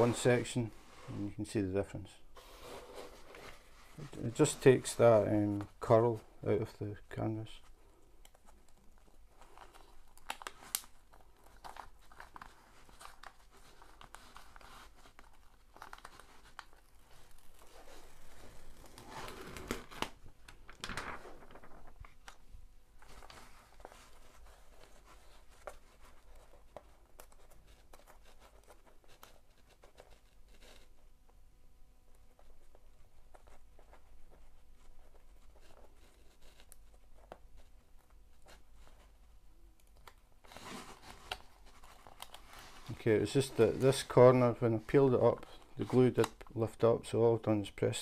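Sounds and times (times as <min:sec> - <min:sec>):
paper rustling: 0:02.4 - 0:05.9, 0:07.6 - 0:31.0, 0:39.9 - 0:46.8
paper peeling off sticky surface: 0:09.4 - 0:22.4.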